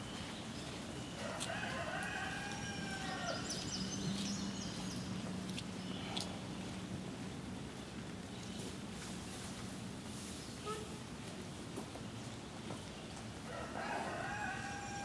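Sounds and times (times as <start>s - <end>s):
rooster crowing: 1.2s - 3.6s, 13.5s - 15.0s.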